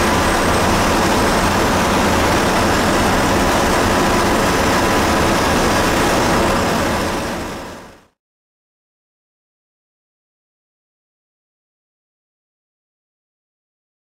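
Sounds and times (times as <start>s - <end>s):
bus engine and road noise: 0.0s - 8.1s.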